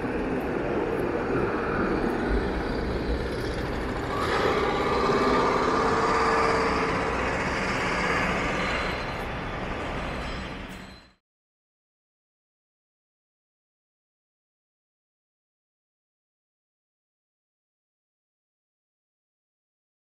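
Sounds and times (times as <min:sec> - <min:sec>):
large vehicle passing with whine: 0:00.0 - 0:10.2
city street traffic: 0:00.0 - 0:11.1.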